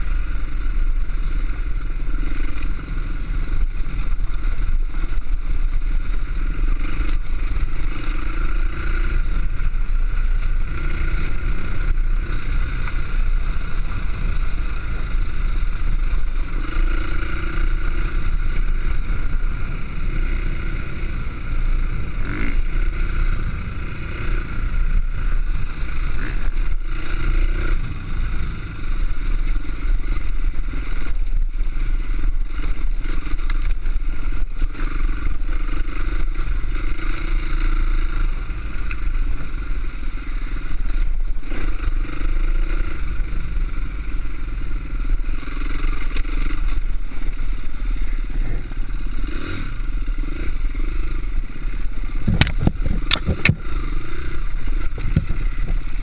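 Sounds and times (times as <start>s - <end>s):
dirt bike engine running: 0.0s - 56.0s
wind buffeting microphone: 52.2s - 53.6s.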